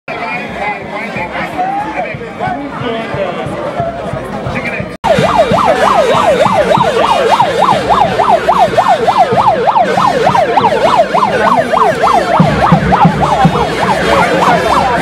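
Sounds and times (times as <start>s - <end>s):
murmur of crowd voices: 0.1s - 15.0s
electronic siren yelping: 5.0s - 15.0s.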